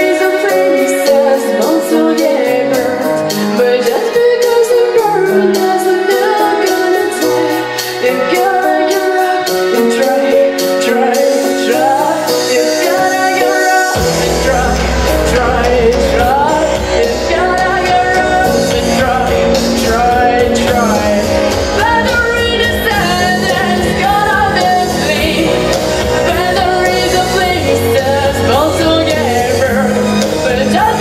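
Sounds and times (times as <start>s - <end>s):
instrumental accompaniment: 0.0s - 31.0s
deep bass: 14.0s - 31.0s
girl singing into microphone: 21.8s - 29.5s.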